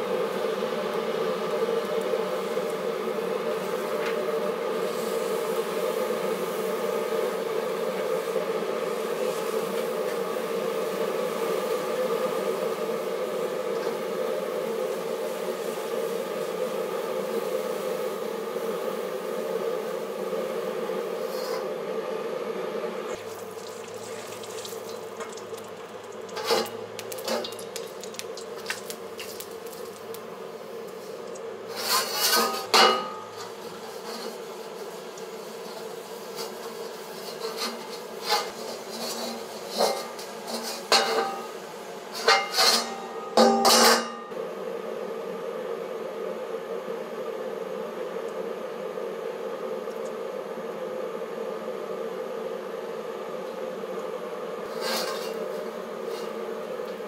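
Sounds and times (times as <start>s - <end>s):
wok burner buzzing drone: 0.0s - 57.0s
wok clanking and scraping: 23.8s - 30.0s, 31.0s - 34.8s, 36.4s - 41.5s, 42.1s - 44.3s, 54.7s - 56.4s.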